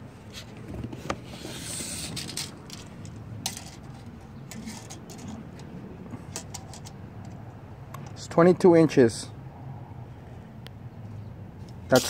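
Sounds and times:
tape measure scrape: 1.2s - 2.9s.

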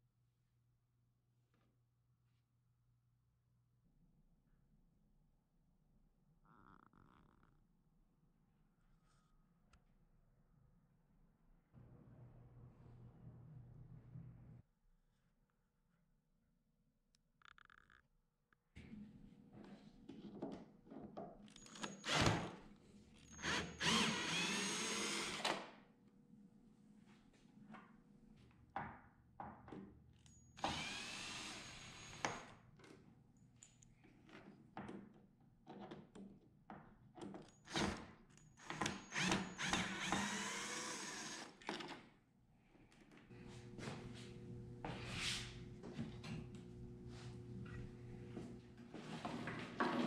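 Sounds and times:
cordless drill whining: 21.6s - 22.5s, 23.3s - 25.6s, 30.6s - 32.5s, 37.7s - 41.7s.

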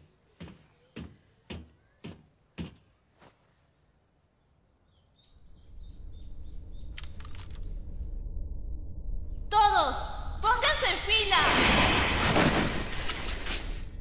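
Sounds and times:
faint bird chirps: 4.2s - 8.3s
low background rumble: 5.3s - 11.3s.

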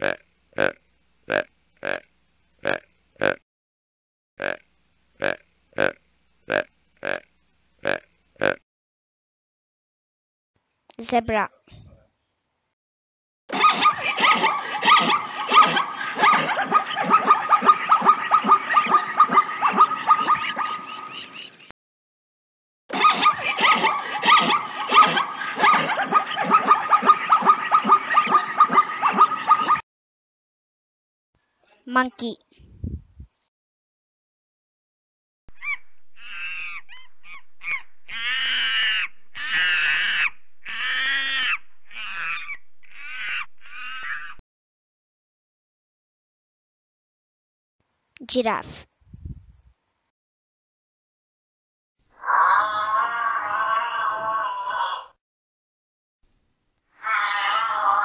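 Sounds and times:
zebra barking: 0.0s - 3.4s, 5.2s - 8.6s, 13.5s - 21.2s, 22.9s - 29.8s, 35.6s - 44.4s
monkey calling: 13.5s - 21.5s, 22.9s - 29.8s, 35.6s - 44.4s.

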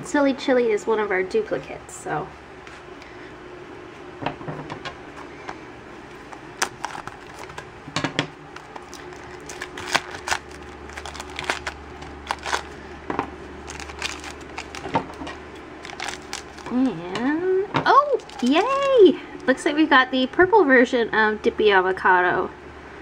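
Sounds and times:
plastic bag crinkling: 6.3s - 7.7s, 8.5s - 13.0s, 13.6s - 17.0s, 18.0s - 19.6s.

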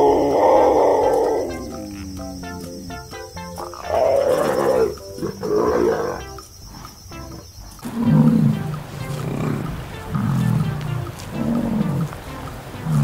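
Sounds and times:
harsh animal roars: 0.0s - 2.1s, 3.8s - 6.2s, 7.8s - 8.5s, 9.1s - 10.6s
background music with stepped melody: 0.0s - 13.0s
deep bison grunts: 9.1s - 12.2s.

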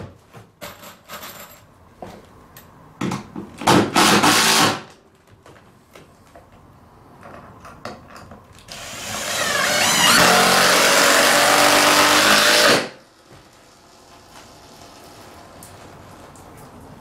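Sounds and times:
cordless drill whining: 8.7s - 12.8s.

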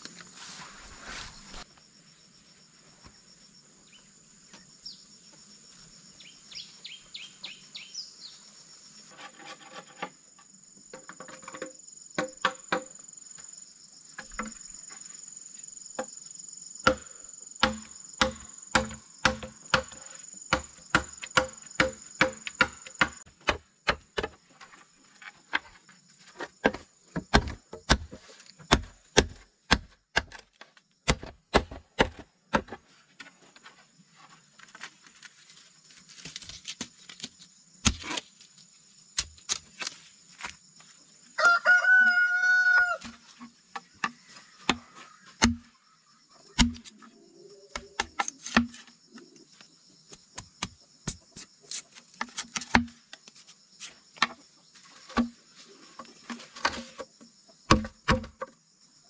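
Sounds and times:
machete chopping bamboo: 12.2s - 12.9s, 16.8s - 24.4s, 26.6s - 32.8s, 36.6s - 38.2s, 44.0s - 45.7s, 46.6s - 47.0s, 47.8s - 48.9s, 52.2s - 53.0s, 57.7s - 58.4s.

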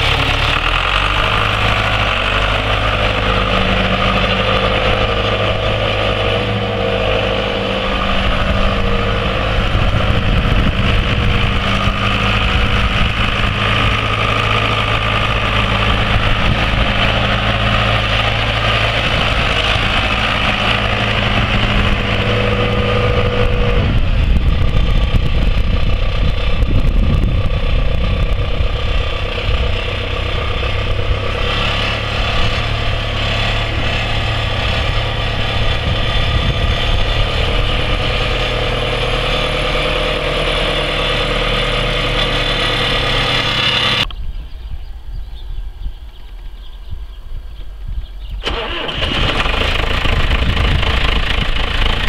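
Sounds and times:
tractor diesel engine running: 0.0s - 44.4s, 47.6s - 52.0s.

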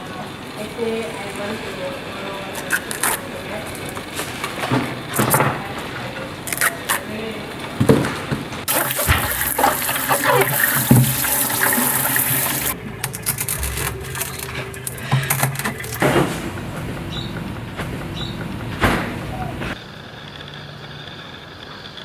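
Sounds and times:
water running and splashing: 8.7s - 16.2s.

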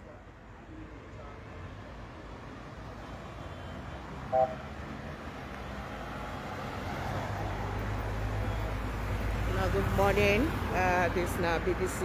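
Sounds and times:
cars driving past: 1.1s - 12.0s
short beep: 4.3s - 4.6s.

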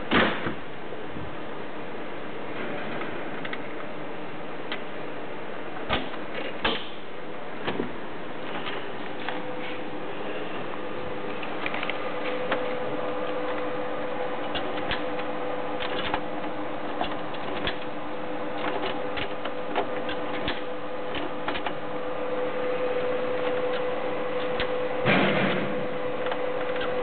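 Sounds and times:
atm machinery hum: 0.0s - 27.0s.

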